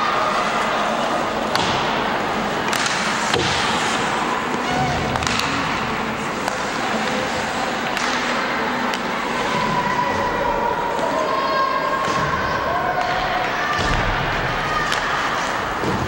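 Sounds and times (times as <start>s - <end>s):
arena crowd noise: 0.0s - 16.0s
hockey sticks knocking puck: 1.4s - 9.7s, 12.0s - 16.0s.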